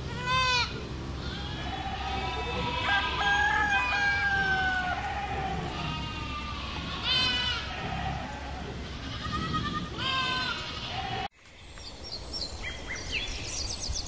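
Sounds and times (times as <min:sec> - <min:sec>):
sheep bleating: 0:00.1 - 0:11.3.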